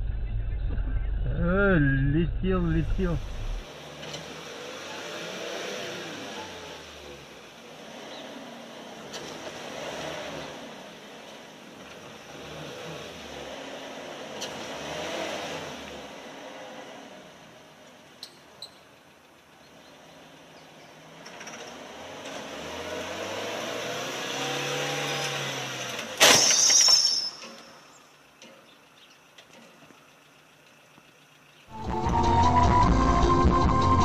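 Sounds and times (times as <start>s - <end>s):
car engine speeding up: 0.0s - 17.3s, 21.4s - 26.2s, 31.7s - 34.0s
car crash: 25.1s - 27.9s
glass breaking: 26.2s - 27.8s.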